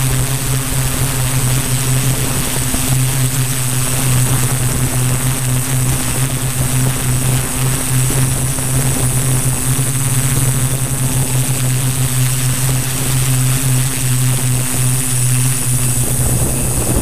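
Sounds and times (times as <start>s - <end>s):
drone motors humming: 0.0s - 17.0s
wind buffeting microphone: 14.3s - 17.0s.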